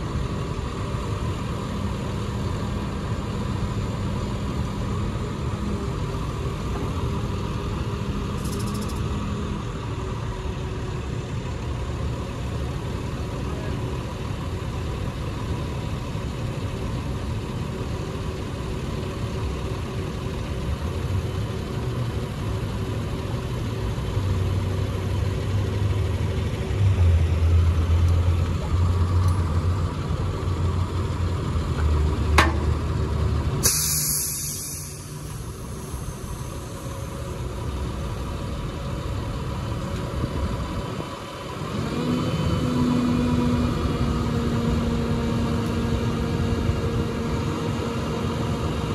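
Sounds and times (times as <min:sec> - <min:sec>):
truck engine running: 0:00.0 - 0:48.9
short hiss: 0:33.6 - 0:36.5.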